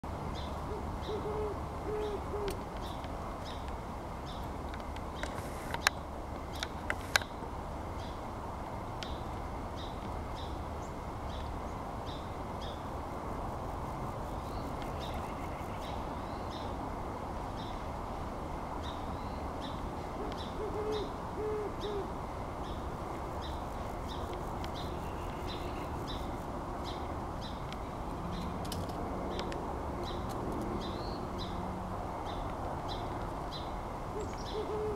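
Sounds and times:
background noise: 0.0 - 34.9
owl hooting: 0.7 - 2.6, 20.2 - 22.1, 34.2 - 34.9.

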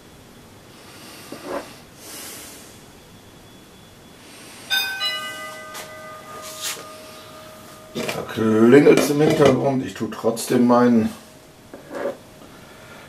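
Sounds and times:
two-tone doorbell chime: 4.7 - 11.6.

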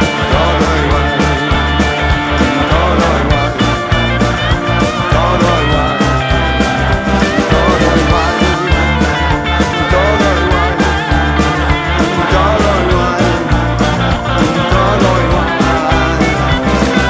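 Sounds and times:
prominent bass: 0.0 - 17.0
rock band instrumental: 0.0 - 17.0
steady drum beat: 0.0 - 17.0.

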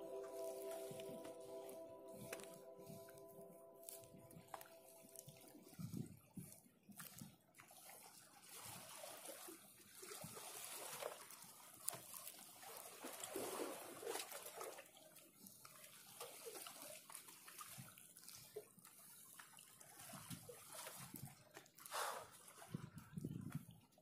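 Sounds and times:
water lapping against concrete: 3.9 - 24.0.

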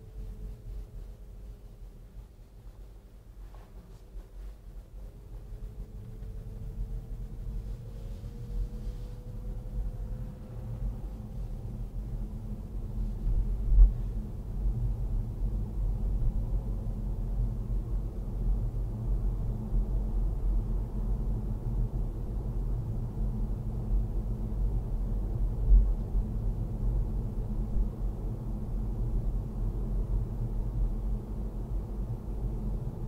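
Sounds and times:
car engine and tyres rumbling: 4.5 - 15.2.

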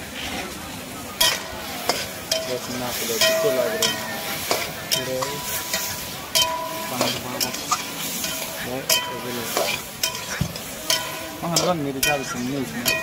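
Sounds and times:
meat sizzling in a pan: 1.2 - 13.0
metal spatula scraping metal pan: 1.2 - 13.0.

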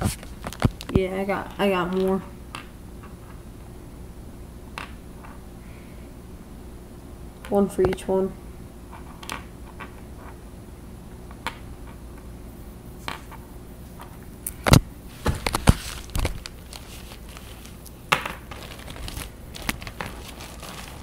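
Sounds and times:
rustling: 13.0 - 21.0.

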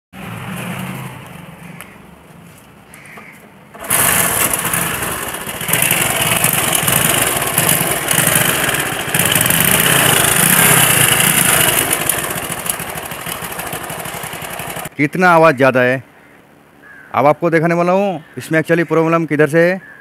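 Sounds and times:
moped engine running: 3.7 - 14.9
mechanical rattle: 3.8 - 14.9
man talking: 15.0 - 16.1, 17.2 - 19.8.

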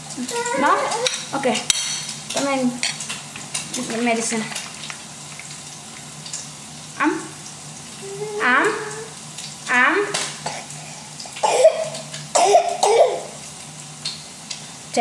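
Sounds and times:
food frying in a pan: 0.0 - 15.0
toddler fussing: 0.2 - 1.2, 8.0 - 9.2.

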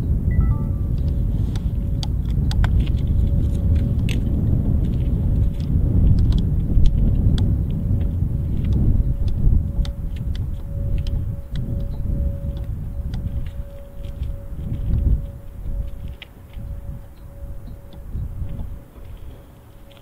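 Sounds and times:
faint steady tone: 0.0 - 2.5, 7.2 - 20.0
heavy low rumble: 0.0 - 16.1
short high beeps: 0.3 - 1.0
light ticks and chirps: 5.6 - 20.0.

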